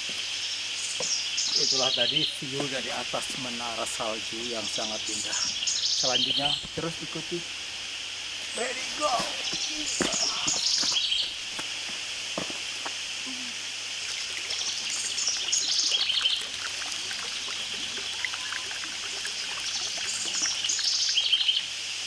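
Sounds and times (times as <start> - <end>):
songbird chirping: 0.0 - 21.7
fountain water splashing into basin: 1.6 - 22.0.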